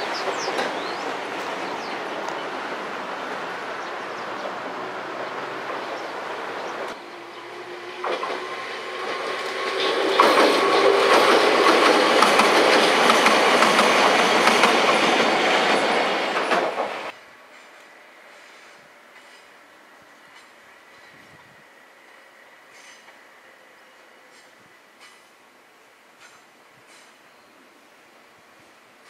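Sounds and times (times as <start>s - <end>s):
train wheels clattering over rail joints: 7.9s - 17.8s.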